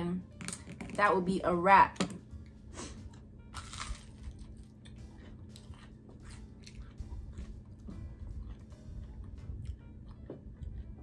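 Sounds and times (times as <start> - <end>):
crunching and chewing onion ring: 2.9 - 11.0.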